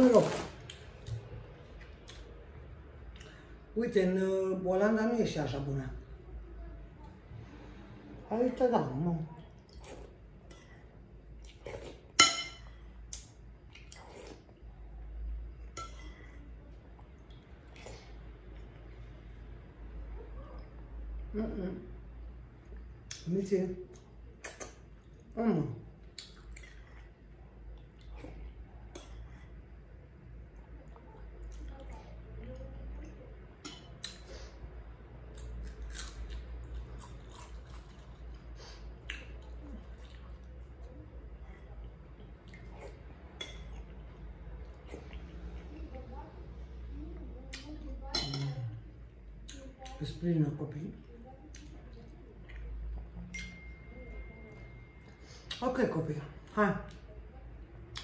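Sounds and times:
low steady hum: 0.0s - 58.0s
soft eating sounds: 0.0s - 58.0s
chewing: 9.3s - 12.2s, 13.1s - 14.6s, 26.0s - 29.6s, 35.3s - 46.0s, 51.0s - 53.2s
spoon clinking on soup bowl: 12.2s - 12.8s, 43.4s - 43.8s, 48.1s - 48.7s, 53.3s - 55.0s.

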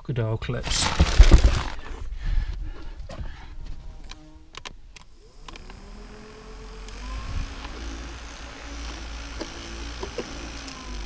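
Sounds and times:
electric fan motor whine: 3.3s - 11.0s.

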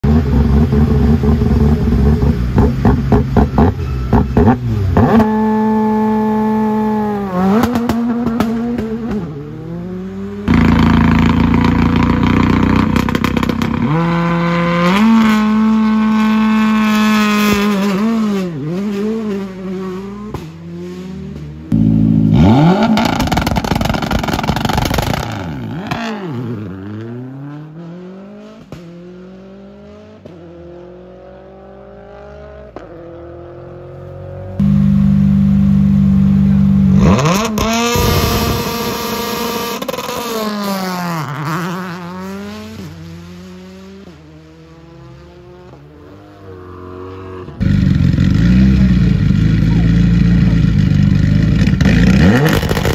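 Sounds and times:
rally car engines revving: 0.0s - 52.9s
anti-lag popping and crackling: 23.0s - 26.0s, 52.4s - 52.9s.

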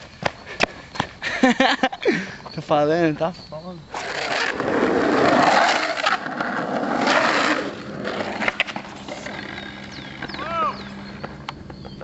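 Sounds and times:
skateboard wheels rolling on asphalt: 3.9s - 12.0s
skateboard clicks: 5.3s - 10.3s.

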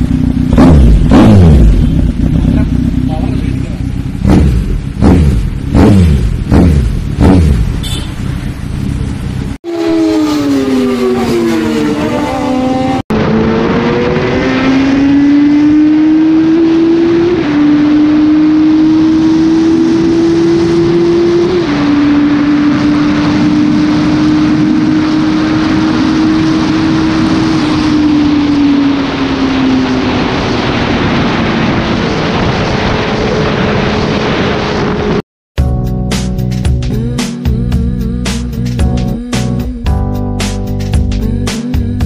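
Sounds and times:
motorcycle engine accelerating: 0.0s - 35.2s
wind noise rushing: 7.8s - 35.2s.

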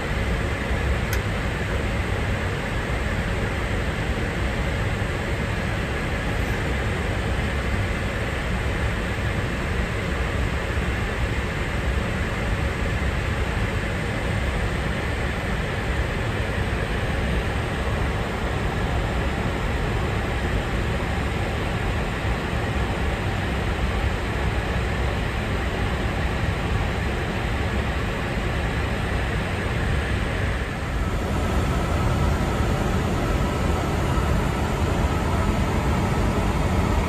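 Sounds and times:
airliner cabin noise: 14.4s - 37.0s.

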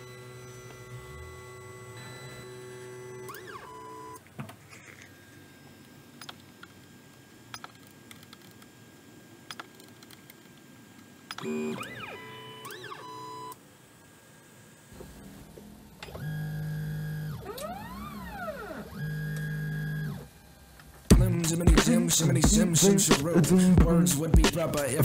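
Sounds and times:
stepper motors whining: 0.0s - 6.7s, 11.3s - 13.6s, 14.9s - 25.0s.

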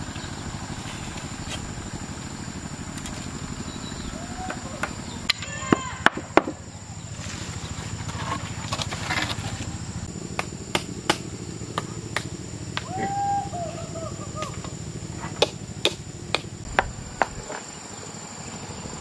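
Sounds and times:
machete chopping a branch: 10.3s - 13.1s, 14.4s - 17.7s.

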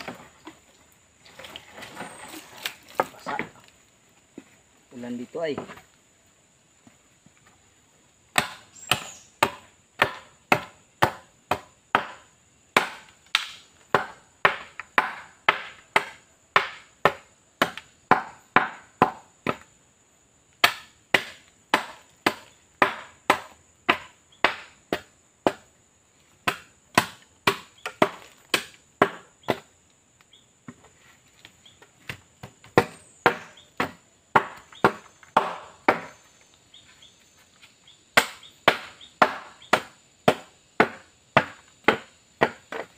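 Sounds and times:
blade chopping hollow bamboo: 8.3s - 19.7s, 20.6s - 25.7s, 26.4s - 29.7s, 32.0s - 36.2s, 38.2s - 42.9s.

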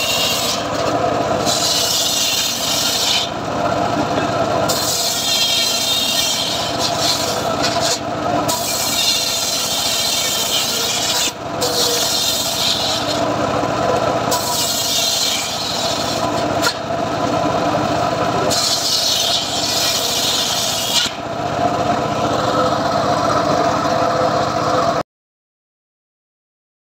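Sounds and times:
saw blade rasping through wood: 0.0s - 3.4s, 4.2s - 16.9s, 18.3s - 21.2s
circular saw motor hum: 0.0s - 25.0s.

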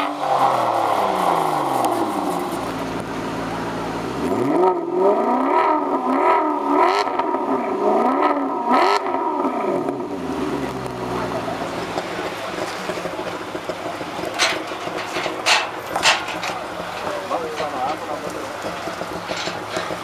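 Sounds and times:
car engine revving: 0.0s - 20.0s
car pulling away: 0.0s - 20.0s
exhaust throttle blips: 0.0s - 20.0s.

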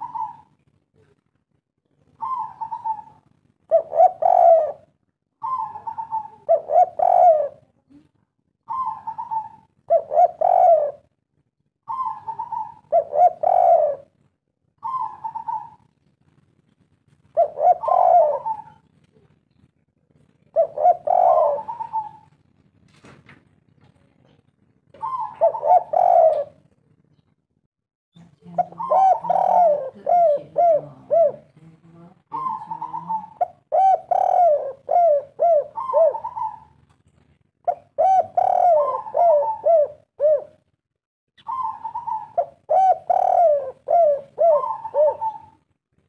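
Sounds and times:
dove cooing: 0.0s - 1.1s, 2.1s - 7.7s, 8.6s - 11.2s, 11.8s - 14.2s, 14.8s - 15.9s, 17.3s - 19.3s, 20.4s - 22.4s, 24.9s - 26.7s, 28.4s - 36.8s, 37.6s - 40.6s, 41.4s - 45.7s.

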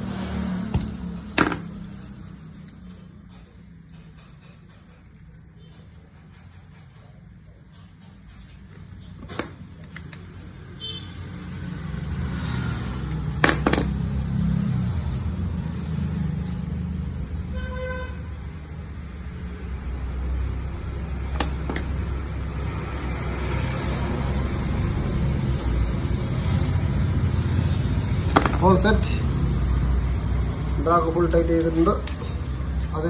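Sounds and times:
road traffic rumble: 0.0s - 33.0s
car horn toot: 10.8s - 11.3s, 17.5s - 18.4s.

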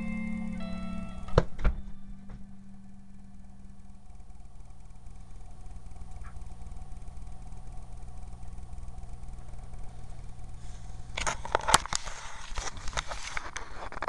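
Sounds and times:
steady low hum: 0.0s - 14.0s
webcam handling clicks and rustling: 11.2s - 14.0s.

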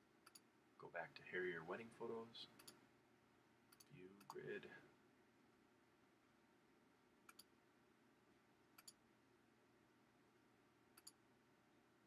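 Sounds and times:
faint computer mouse clicks: 0.2s - 0.5s, 2.5s - 2.8s, 7.2s - 7.5s, 8.8s - 9.0s, 10.9s - 11.2s.

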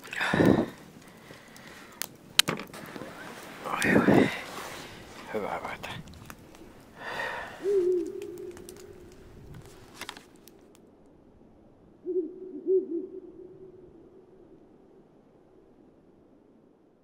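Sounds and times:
low hooting tones: 2.8s - 9.8s, 11.5s - 16.5s.

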